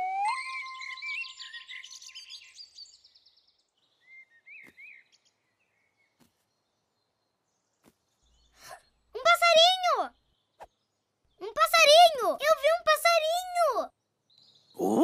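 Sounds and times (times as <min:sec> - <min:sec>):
short bird chirps: 0:00.2 - 0:07.2.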